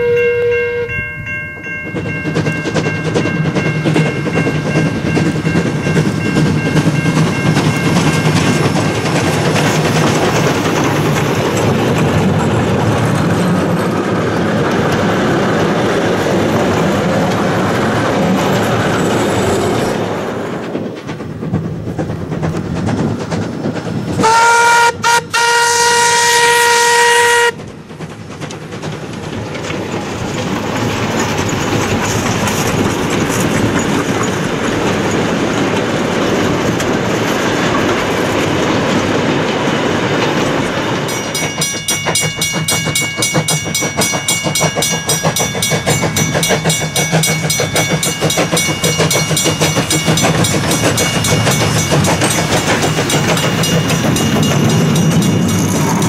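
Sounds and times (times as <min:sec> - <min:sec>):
steam train whistle: 0:00.0 - 0:01.0, 0:24.2 - 0:27.6
wheels clattering over rail joints: 0:01.1 - 0:56.0.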